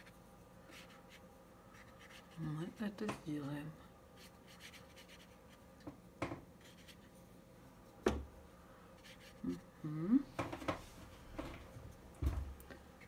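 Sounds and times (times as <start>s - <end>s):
paint brush scratching: 0.0s - 2.6s, 4.2s - 5.6s, 9.0s - 9.6s.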